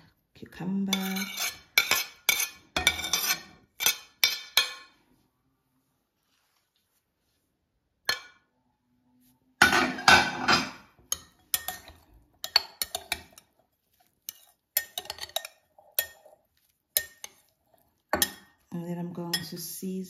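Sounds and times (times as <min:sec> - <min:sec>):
spoon scraping glass bowl: 0:00.8 - 0:04.8, 0:10.4 - 0:18.6.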